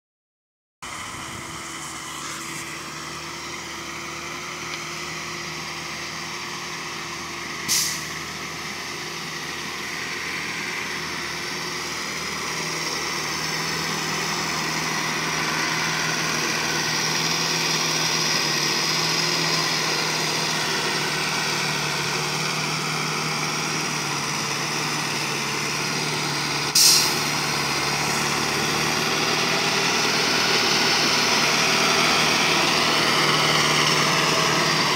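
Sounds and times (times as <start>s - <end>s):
diesel truck engine reversing: 0.8s - 34.9s
sharp air hisses: 7.7s - 8.1s, 26.7s - 27.3s.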